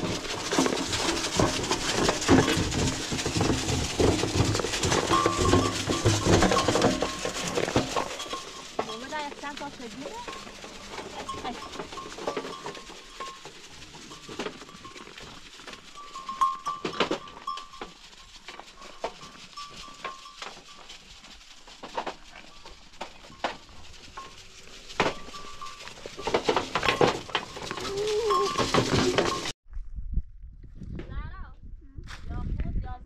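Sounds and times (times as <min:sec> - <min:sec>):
knocks and clatter: 0:00.0 - 0:29.6
goats bleating: 0:27.6 - 0:29.4.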